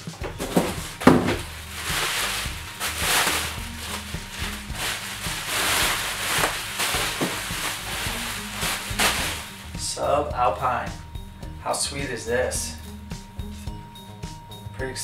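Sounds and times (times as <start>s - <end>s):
bubble wrap crinkling: 0.3s - 9.9s.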